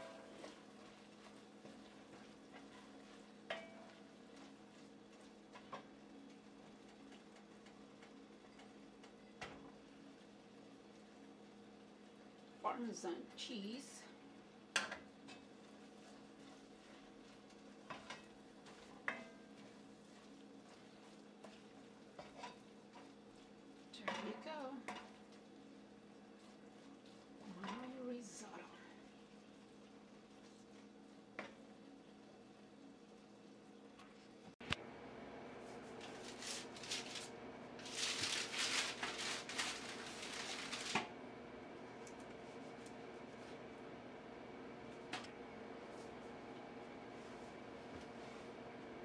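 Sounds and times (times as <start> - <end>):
wooden spoon stirring in pot: 0.0 - 12.6, 14.2 - 34.4, 41.8 - 48.8
paper rustling: 35.9 - 41.1
spatula scraping baking sheet: 36.0 - 37.2, 37.8 - 41.0.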